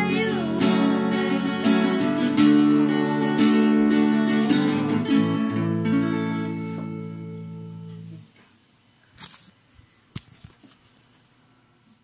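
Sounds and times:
acoustic guitar strummed chord: 0.0s - 8.2s.

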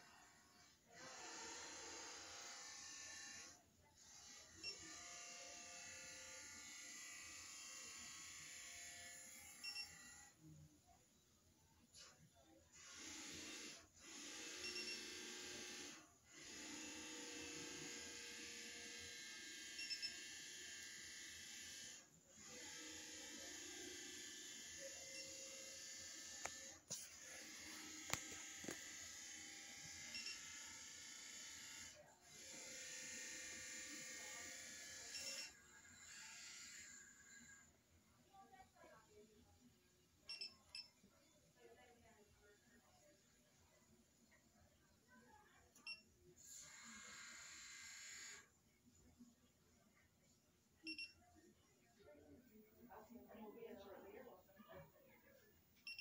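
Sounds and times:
dental curing light whirring: 0.9s - 10.4s, 12.8s - 37.8s, 45.8s - 48.6s.

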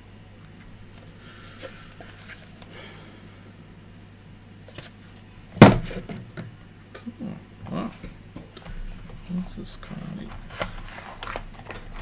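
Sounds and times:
cardboard packaging rustling: 10.2s - 12.0s.

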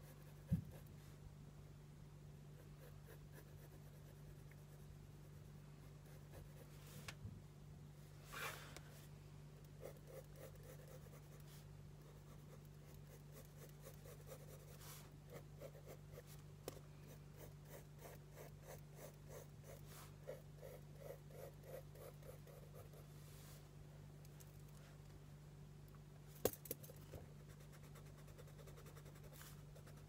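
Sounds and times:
steady low hum: 0.0s - 30.0s
pencil sketching on paper: 2.6s - 4.8s, 9.8s - 16.4s, 17.1s - 23.1s.

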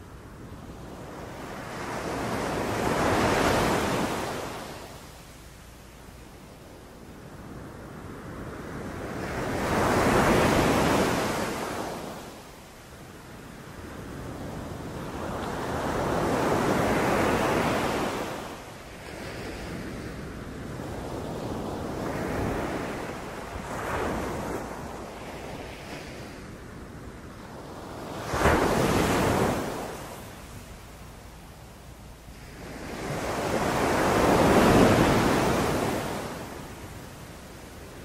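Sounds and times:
sea waves breaking on beach: 32.4s - 36.9s.

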